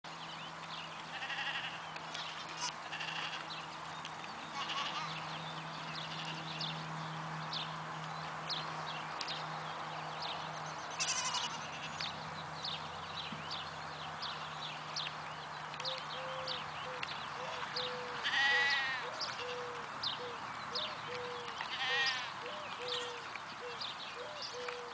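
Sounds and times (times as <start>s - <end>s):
birds chirping: 0.1s - 24.9s
goats bleating: 1.1s - 3.5s, 4.5s - 5.2s, 11.0s - 12.0s, 17.6s - 19.5s, 21.7s - 22.4s.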